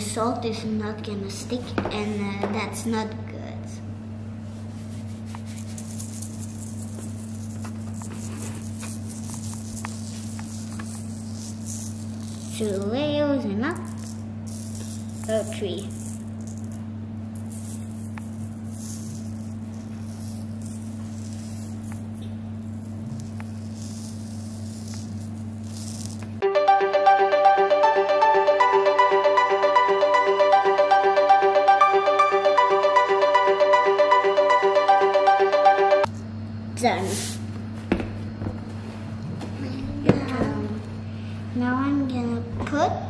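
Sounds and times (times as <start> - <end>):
steady low hum: 0.0 - 43.0
salt grains pattering on paper: 4.8 - 13.0, 13.7 - 26.4.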